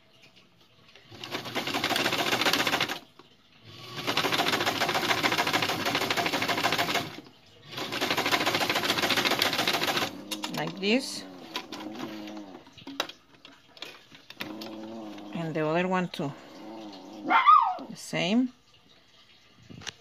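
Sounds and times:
sewing machine stitching: 1.1 - 3.1, 3.7 - 13.0.

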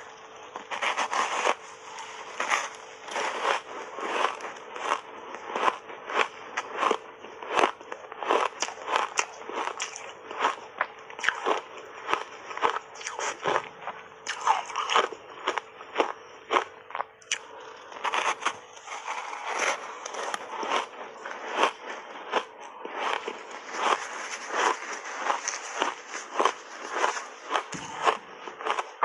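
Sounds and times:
ice being chewed: 0.0 - 29.0.

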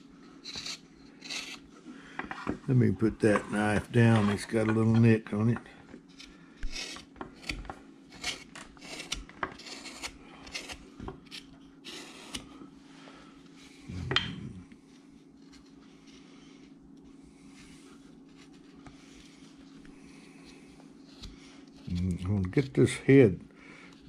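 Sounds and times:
carving knife shaving wood: 0.2 - 1.7, 2.9 - 5.5, 6.1 - 12.6.

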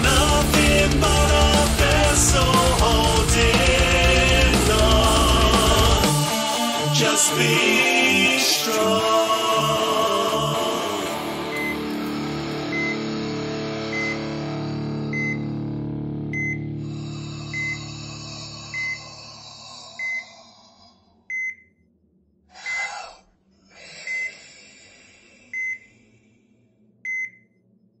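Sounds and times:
patient monitor beeping: 11.5 - 11.9, 12.6 - 13.1, 13.9 - 14.4, 15.1 - 15.5, 16.3 - 16.7, 17.5 - 18.0, 18.7 - 19.1, 20.0 - 20.3, 21.3 - 21.8, 24.1 - 24.3, 25.5 - 25.9, 27.1 - 27.5.

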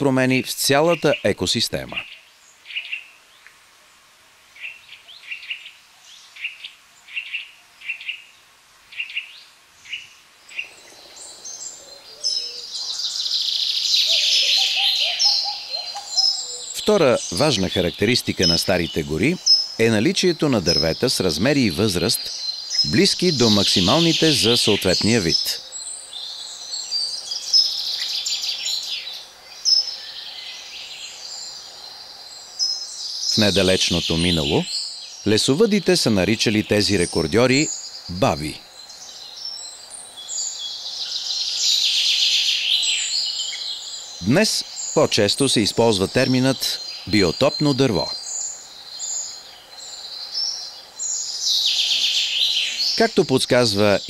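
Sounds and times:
chorus of birdsong: 0.0 - 54.0
songbirds singing and chirping: 0.0 - 54.0
bird repeating sharp call notes: 9.9 - 25.7.

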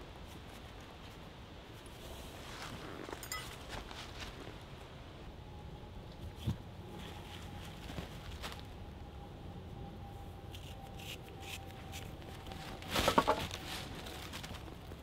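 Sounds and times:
hands rustling dry leaves: 10.6 - 15.0
leaves crunching: 12.3 - 15.0.

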